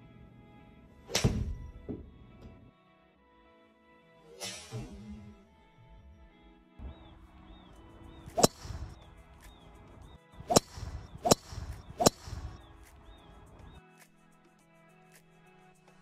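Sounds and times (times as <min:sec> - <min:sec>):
faint background music: 0:00.0 - 0:16.0
golf club striking ball: 0:08.3 - 0:09.0, 0:10.5 - 0:12.6.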